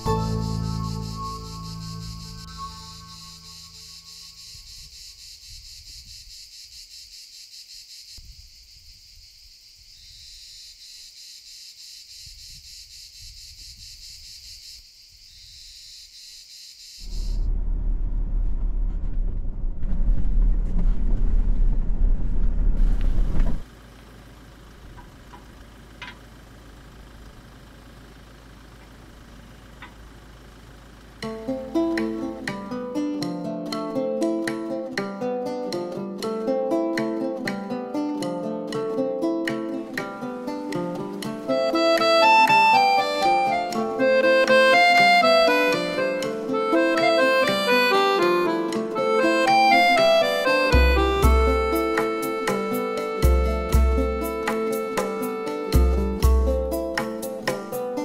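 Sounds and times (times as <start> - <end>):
insects shrilling: 0.0 - 17.4
low hum: 17.0 - 23.6
vehicle engine and wind rumble: 17.0 - 32.4.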